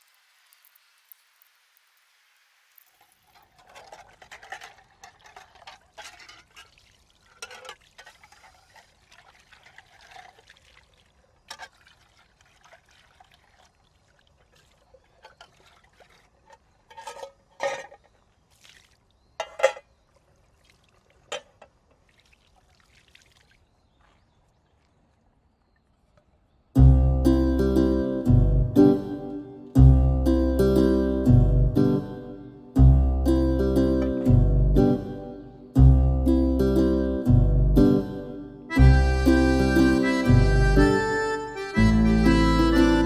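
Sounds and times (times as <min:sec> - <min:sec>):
water pouring and splashing: 0:00.0 - 0:25.5
metal tin clinks and knocks: 0:03.3 - 0:08.6, 0:16.5 - 0:18.1, 0:19.4 - 0:19.9.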